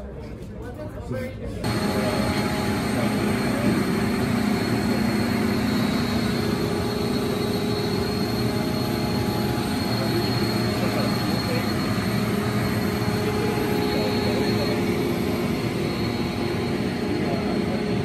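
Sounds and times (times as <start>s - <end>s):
machinery hum and whine: 1.6s - 18.0s.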